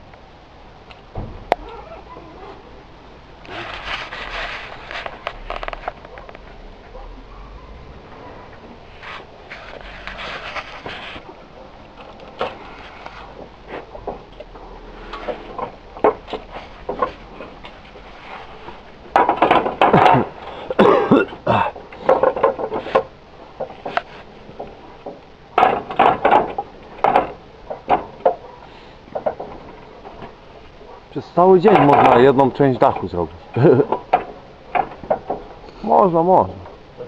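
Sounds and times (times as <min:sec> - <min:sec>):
roof tiles clattering and knocking: 0:11.9 - 0:35.7.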